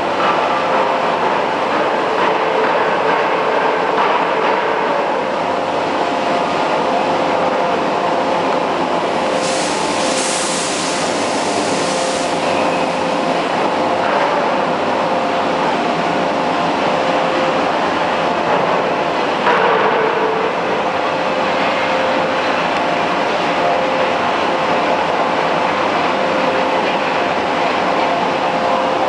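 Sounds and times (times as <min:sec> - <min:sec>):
loud hiss: 0:09.3 - 0:12.6.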